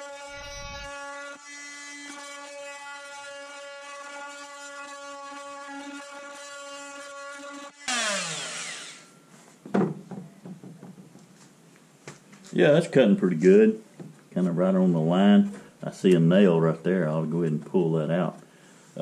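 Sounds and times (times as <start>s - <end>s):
angle grinder cutting wood: 0.0s - 9.2s.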